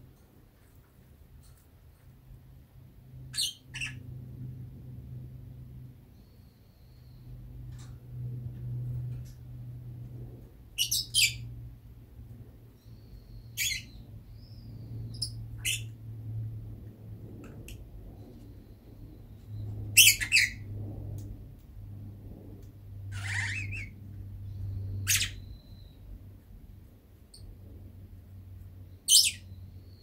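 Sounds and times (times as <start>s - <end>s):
lovebird chirping: 3.3s - 4.0s, 10.8s - 11.5s, 12.8s - 15.9s, 23.1s - 26.0s, 29.0s - 30.0s.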